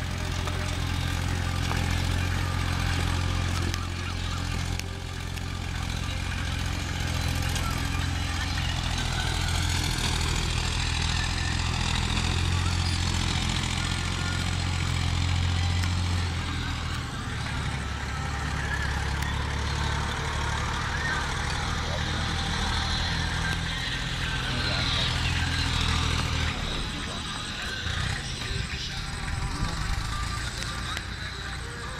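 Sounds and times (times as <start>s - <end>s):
tractor engine running: 0.0s - 31.9s.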